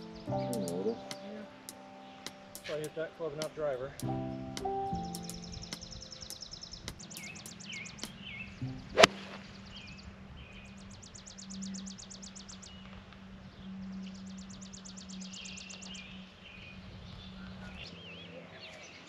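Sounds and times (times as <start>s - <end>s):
birds singing with trills: 0.0s - 19.0s
golf club striking ball: 8.9s - 9.4s.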